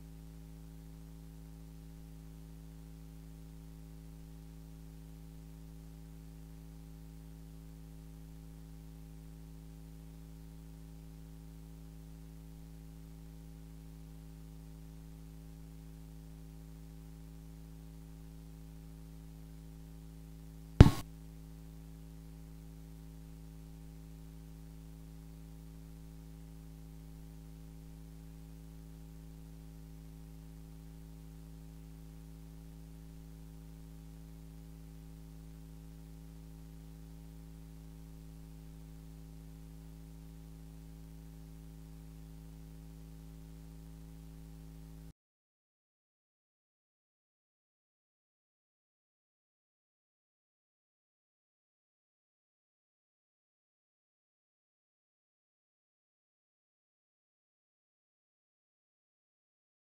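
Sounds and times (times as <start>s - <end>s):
electrical mains hum: 0.0s - 45.1s
sharp loud pop: 20.8s - 21.0s.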